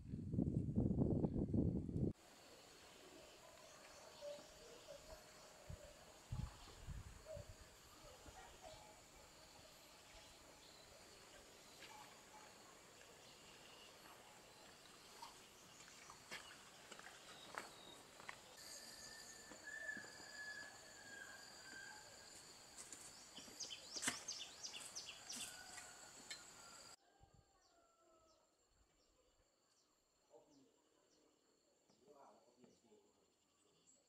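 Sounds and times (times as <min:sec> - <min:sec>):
insect chirping in a steady pulse: 0:02.2 - 0:27.0
bird chirps: 0:13.2 - 0:22.0.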